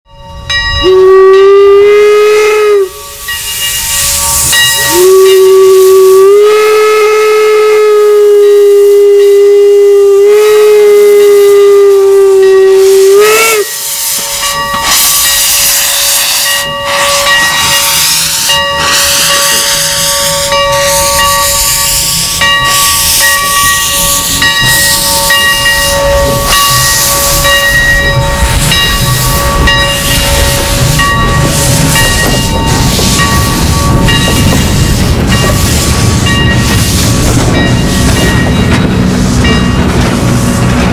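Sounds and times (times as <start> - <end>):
steam whistle: 0.8 - 22.0
locomotive steam hissing: 0.8 - 40.9.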